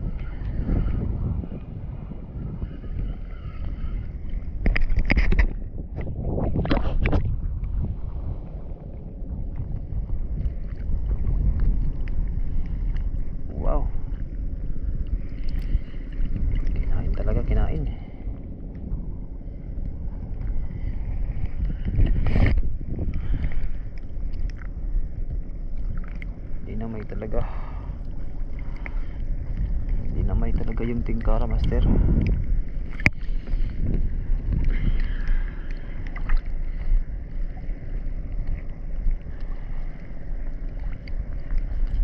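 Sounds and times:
water lapping: 0.0s - 42.0s
wind buffeting microphone: 0.0s - 42.0s
faint ticks: 14.1s - 16.9s, 17.9s - 42.0s.

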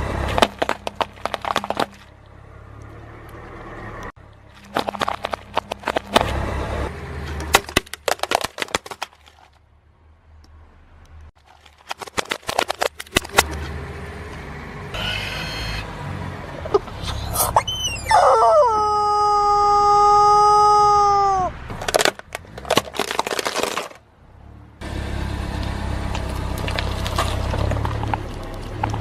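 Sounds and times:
low engine rumble: 0.0s - 11.8s, 12.7s - 29.0s
candy balls cracking under tyre: 0.3s - 2.1s, 7.5s - 9.2s, 11.7s - 13.5s, 21.7s - 24.0s
plastic horns snapping under tyre: 7.3s - 9.4s, 11.8s - 14.4s, 21.7s - 24.0s
rubber chicken squealing: 15.0s - 15.9s, 16.7s - 21.6s.

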